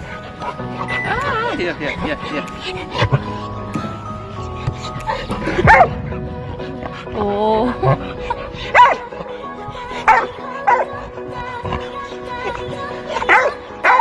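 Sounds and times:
background music: 0.0s - 14.0s
dog barking: 5.6s - 5.9s, 8.7s - 9.1s, 10.1s - 10.9s, 13.2s - 14.0s.

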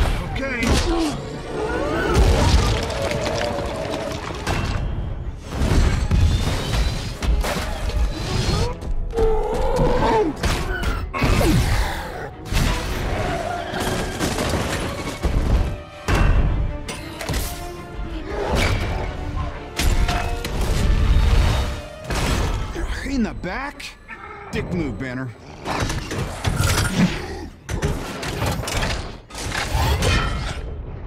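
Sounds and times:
film score music: 0.0s - 31.0s
debris shattering: 2.2s - 7.9s.

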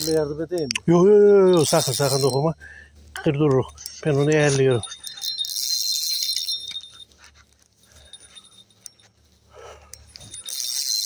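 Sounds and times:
fishing reel drag buzzing: 1.5s - 2.4s, 3.8s - 6.9s, 10.1s - 11.0s.

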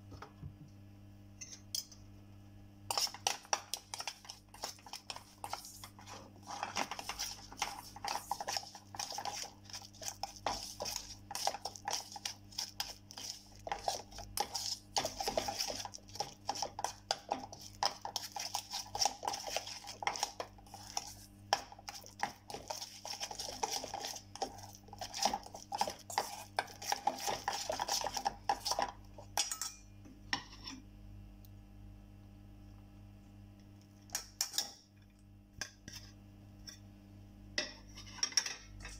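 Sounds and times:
spoon clinking and scraping steel bowl: 1.4s - 2.0s, 2.9s - 30.8s.

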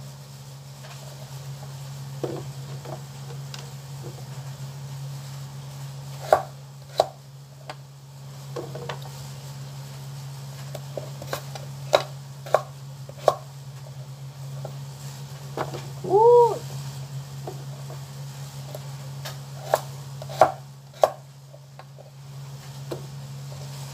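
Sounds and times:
knife chopping on cutting board: 6.2s - 7.2s, 11.3s - 13.4s, 19.6s - 21.2s.

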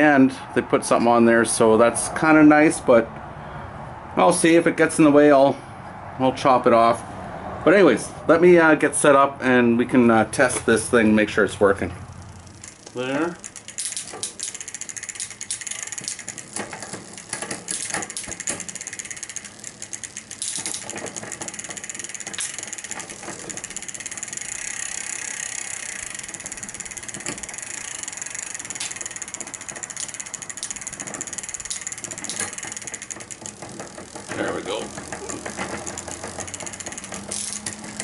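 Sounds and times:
bicycle chain whirring: 11.3s - 38.0s.

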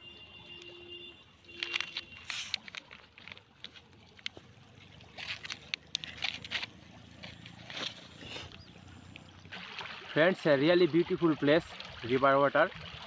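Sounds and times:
plastic snack packet crinkling: 1.5s - 4.3s.

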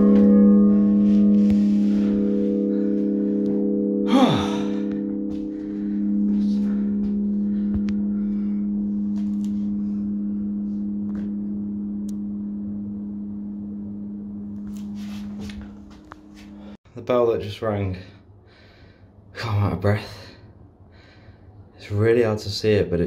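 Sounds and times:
large church bell ringing: 0.0s - 12.0s.

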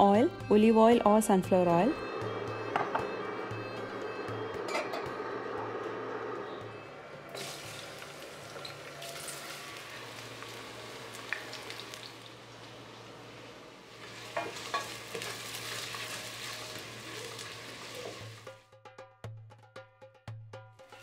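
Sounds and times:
onions sizzling in hot oil: 7.4s - 13.0s, 13.9s - 18.5s.

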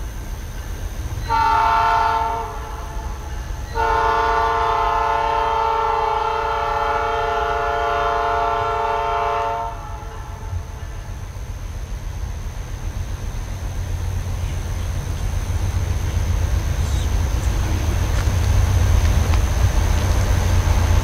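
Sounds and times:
locomotive air horn: 1.2s - 10.7s.

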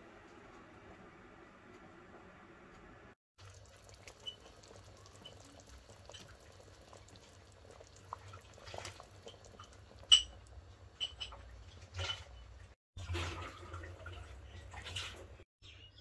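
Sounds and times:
meatballs splashing into broth: 3.4s - 10.3s
soup bubbling: 3.4s - 11.7s.

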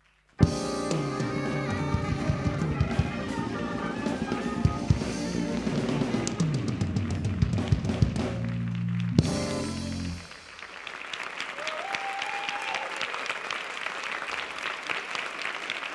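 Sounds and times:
jazz-funk band playing: 0.4s - 10.5s
audience applause: 2.0s - 15.9s
drum fill with cymbal hits: 9.2s - 10.4s.

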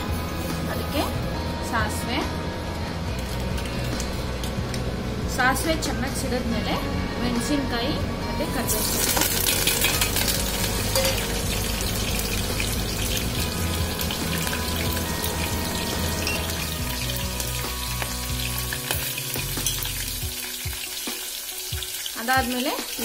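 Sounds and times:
chillies sizzling in hot oil: 8.4s - 23.0s.

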